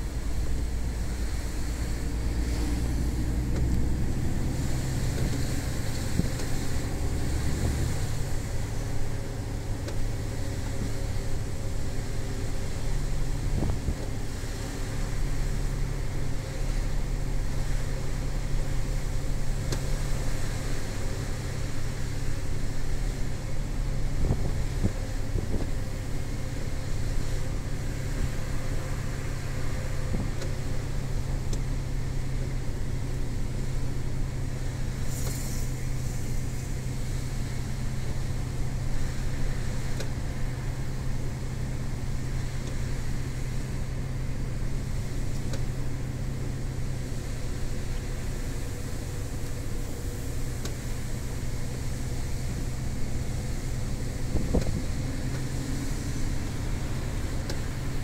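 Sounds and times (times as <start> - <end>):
road noise: 0.0 - 58.0
truck diesel engine running: 0.0 - 58.0
brief hiss: 34.9 - 37.9.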